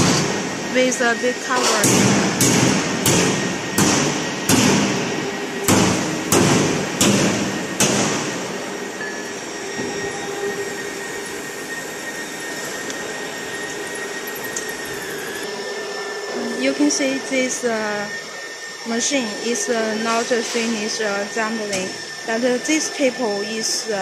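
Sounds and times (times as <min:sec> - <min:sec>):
hammer striking steel: 0:00.0 - 0:00.4, 0:01.6 - 0:05.0, 0:05.6 - 0:08.4
faint high whining tones: 0:00.0 - 0:01.8, 0:03.3 - 0:24.0
machinery hum: 0:00.0 - 0:24.0.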